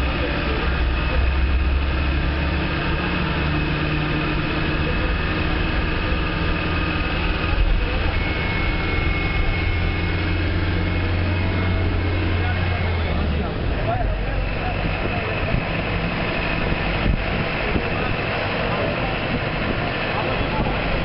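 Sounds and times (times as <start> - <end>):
bus engine drone: 0.0 - 21.0
faint high whine: 7.3 - 13.5.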